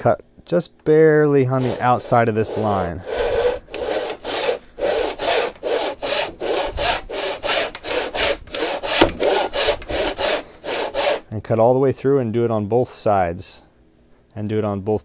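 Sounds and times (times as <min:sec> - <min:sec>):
hand saw cutting wood: 0:01.4 - 0:11.2.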